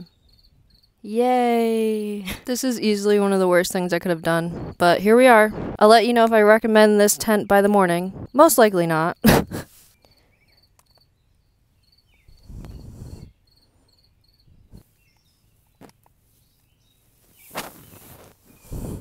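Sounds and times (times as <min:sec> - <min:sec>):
crickets chirping: 0:00.0 - 0:01.0, 0:03.5 - 0:14.8
rustles: 0:12.2 - 0:19.0.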